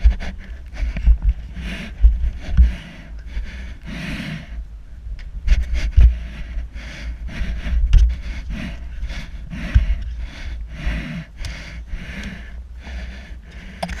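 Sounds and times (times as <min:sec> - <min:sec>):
person panting heavily: 0:00.0 - 0:04.7, 0:05.4 - 0:14.0
wind rumble on microphone: 0:00.0 - 0:14.0.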